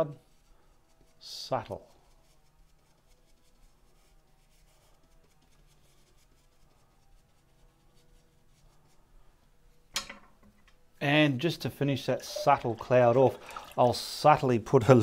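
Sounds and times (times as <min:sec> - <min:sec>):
brush stroking on canvas: 0:00.0 - 0:09.8.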